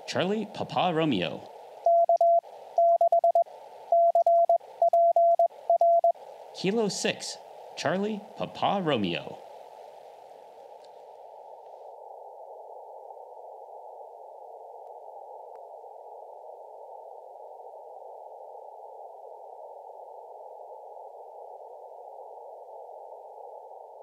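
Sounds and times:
radio band hiss: 0.0s - 4.0s, 5.5s - 11.8s.

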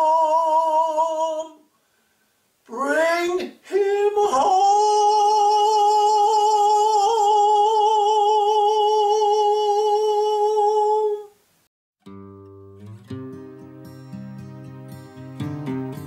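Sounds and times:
man singing a long high note: 0.0s - 1.7s, 2.7s - 11.4s.

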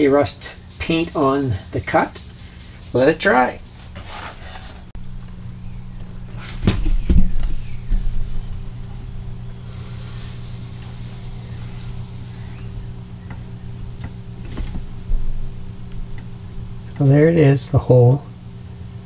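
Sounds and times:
machine humming: 0.0s - 19.0s
knocks and thumps: 6.5s - 7.6s.

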